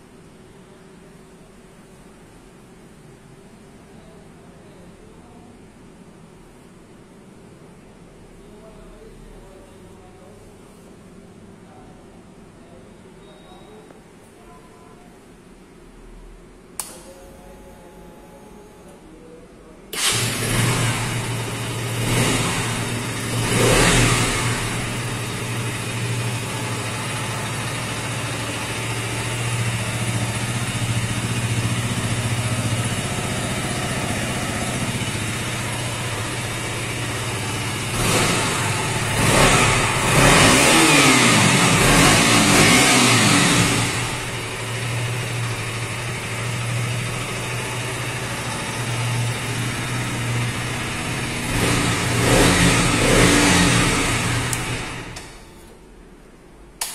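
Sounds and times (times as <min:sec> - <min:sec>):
motorcycle engine starting and idling: 0:19.9 - 0:55.7
motorcycle engine revving: 0:20.0 - 0:55.4.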